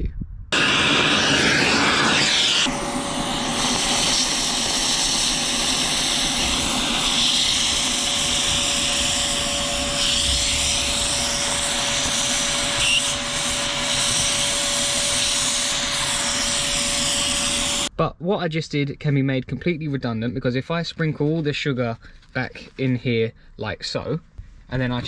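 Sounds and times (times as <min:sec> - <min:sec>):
vacuum cleaner running: 0:00.6 - 0:17.9.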